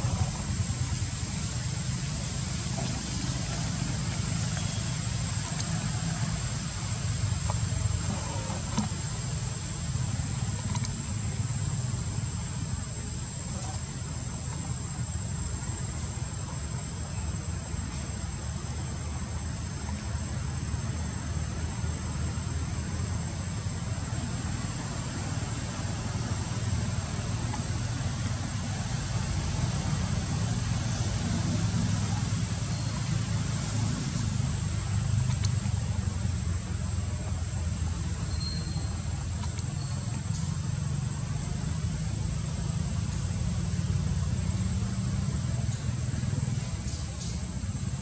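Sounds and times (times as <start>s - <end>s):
low rumble and hiss: 0.0s - 48.0s.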